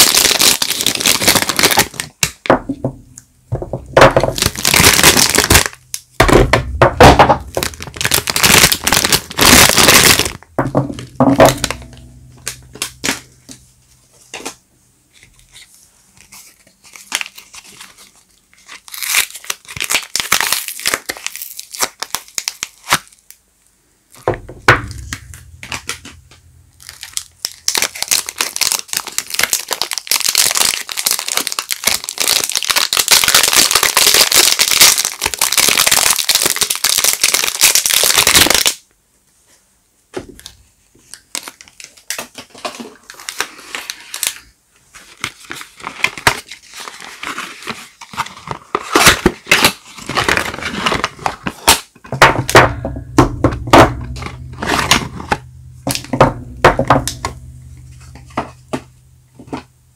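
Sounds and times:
soap wrappers crinkling and tearing: 0.0 - 2.5, 4.0 - 6.2, 7.2 - 13.6, 14.3 - 23.4, 24.8 - 38.8, 40.4 - 59.7.

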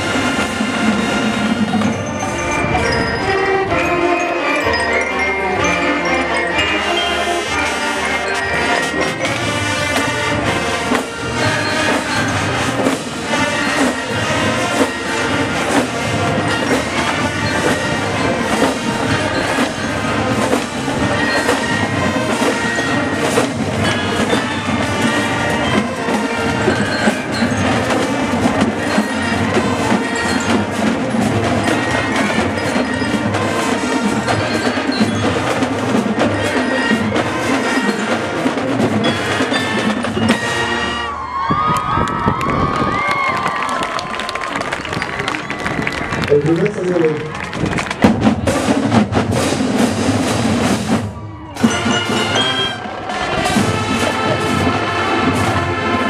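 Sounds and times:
marching band playing: 0.0 - 56.0
ringing mallet percussion: 1.2 - 40.8, 51.6 - 52.9
steady drum beat: 8.8 - 40.3.

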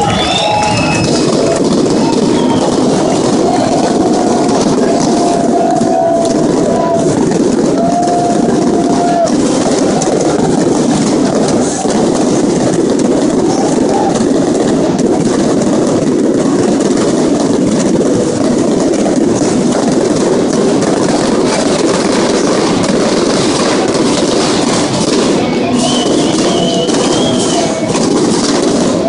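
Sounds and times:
stadium crowd cheering: 0.0 - 29.0.

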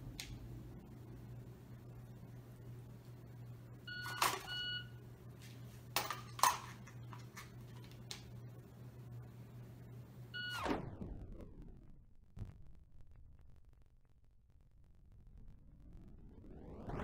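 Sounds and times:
shot timer beeps: 3.9 - 5.0, 10.4 - 10.8.

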